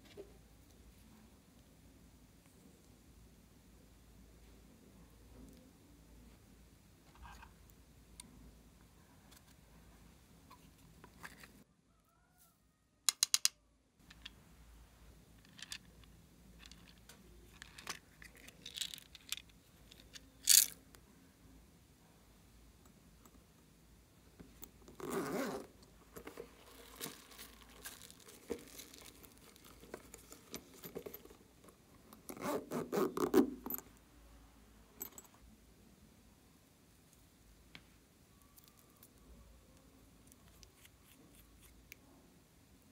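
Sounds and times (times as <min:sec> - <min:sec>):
beads dropping into glass dish: 0:20.4 - 0:20.8.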